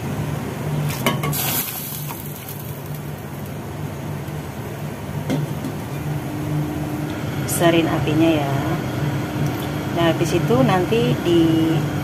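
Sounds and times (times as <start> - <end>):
gas stove hum: 0.0 - 12.0
boiling water rushing: 0.8 - 4.0
food splashing into water: 0.9 - 3.2.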